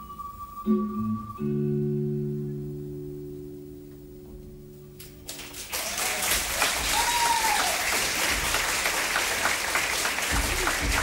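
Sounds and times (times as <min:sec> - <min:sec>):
crowd applause and cheering: 0:05.2 - 0:11.0.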